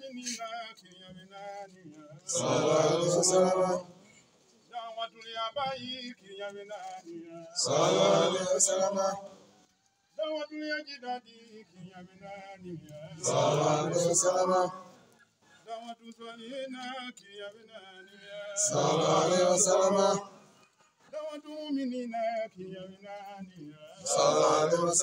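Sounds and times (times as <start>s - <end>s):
man chanting: 0.0s - 4.0s, 4.7s - 9.3s, 10.2s - 14.8s, 15.7s - 20.2s, 21.1s - 25.0s
group of men chanting: 2.0s - 4.2s, 7.6s - 9.4s, 11.7s - 15.0s, 18.0s - 20.6s, 23.8s - 25.0s.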